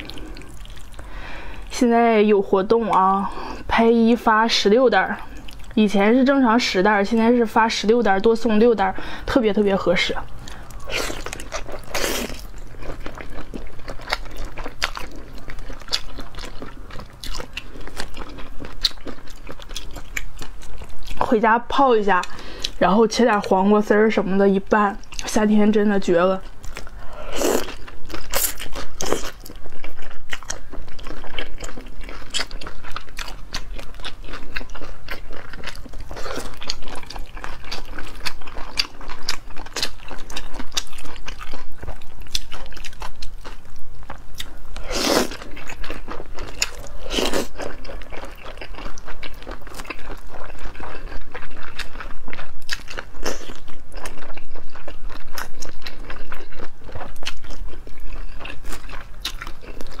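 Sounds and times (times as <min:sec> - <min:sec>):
chewing and crunching: 0:00.0 - 0:01.7, 0:05.0 - 0:05.8, 0:09.8 - 0:21.4, 0:26.4 - 1:00.0.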